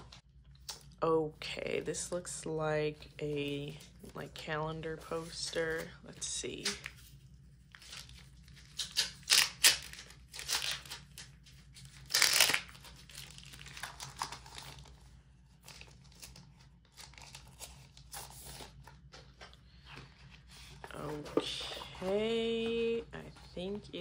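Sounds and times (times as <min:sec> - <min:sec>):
paper poster rustling: 0:02.9 - 0:09.2, 0:10.6 - 0:24.0
plastic sleeve crinkling: 0:07.6 - 0:19.2.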